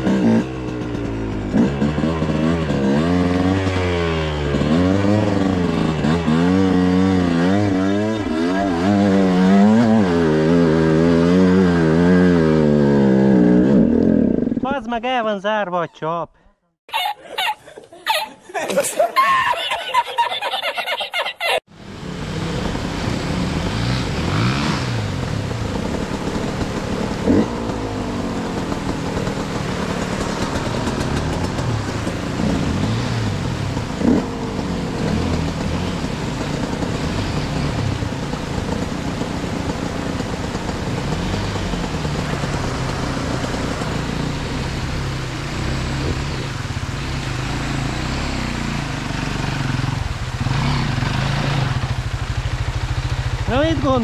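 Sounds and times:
dirt bike engines revving: 0:00.0 - 0:15.6, 0:16.9 - 0:54.0
laughter: 0:16.9 - 0:21.6.

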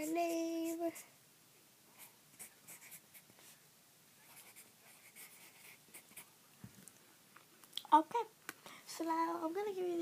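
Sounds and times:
pencil scratching on paper: 0:00.0 - 0:01.0, 0:02.0 - 0:03.3, 0:04.2 - 0:06.3.

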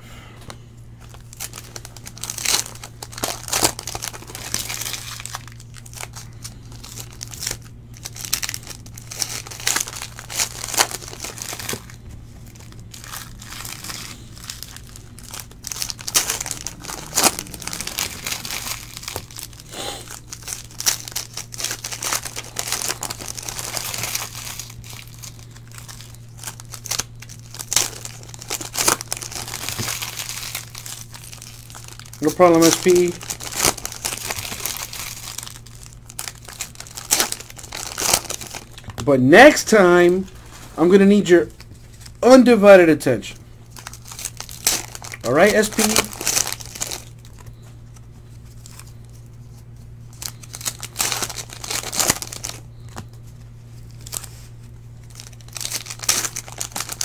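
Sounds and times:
foil wrappers tearing and crinkling: 0:01.0 - 0:57.0.

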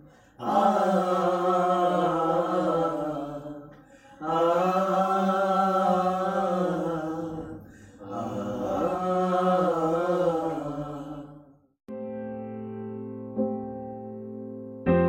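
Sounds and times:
group singing wordless vocalise: 0:00.0 - 0:11.7.

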